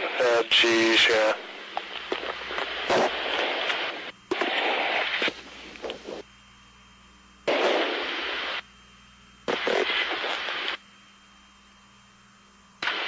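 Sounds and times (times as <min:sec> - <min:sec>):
static hiss bursts: 0:00.0 - 0:06.3, 0:07.4 - 0:08.7, 0:09.4 - 0:10.9, 0:12.8 - 0:13.0
faint low hum: 0:00.0 - 0:13.0.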